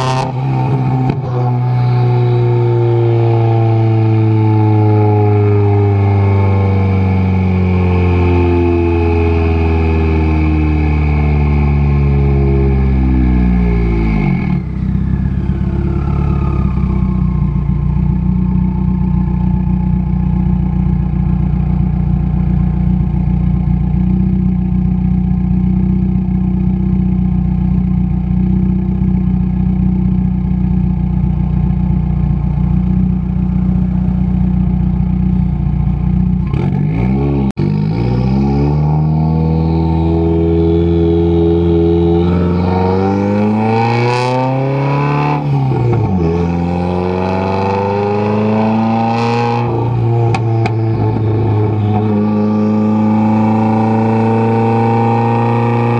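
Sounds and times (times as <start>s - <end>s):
car engine slowing to idle: 0.2s - 36.8s, 49.6s - 55.8s.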